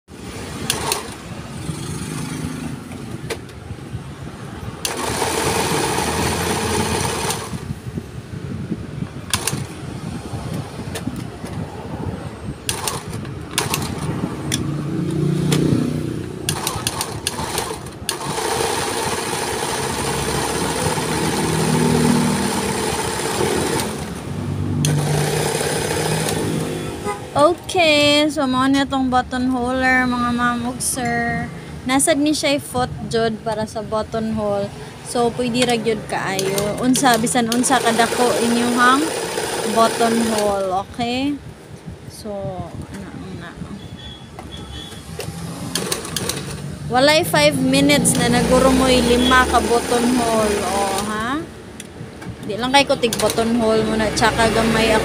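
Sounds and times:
sewing machine running: 0:00.5 - 0:02.4, 0:04.8 - 0:07.7, 0:09.3 - 0:09.8, 0:12.7 - 0:14.1, 0:16.5 - 0:24.2, 0:24.8 - 0:26.8, 0:36.4 - 0:40.7, 0:45.5 - 0:46.7, 0:48.1 - 0:51.3, 0:53.0 - 0:55.0.

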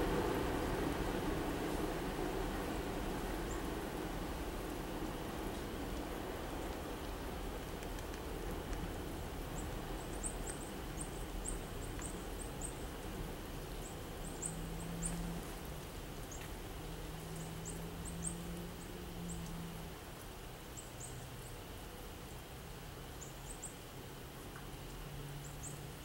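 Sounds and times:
background hiss: 0:00.0 - 0:26.0
small birds chirping: 0:09.5 - 0:12.9, 0:23.2 - 0:23.8.

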